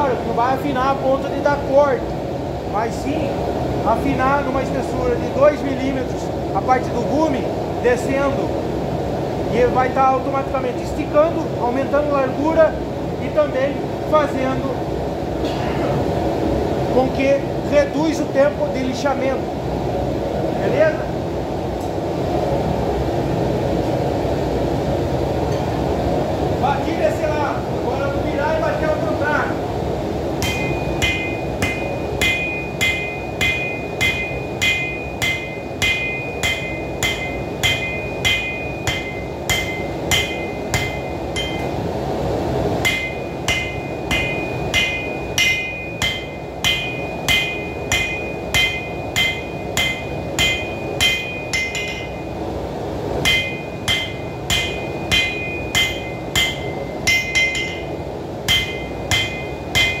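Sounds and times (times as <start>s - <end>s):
steady low rush: 19.3s - 60.0s
hammer ringing on anvil: 30.4s - 41.8s, 42.8s - 52.4s, 53.2s - 57.9s, 58.5s - 60.0s.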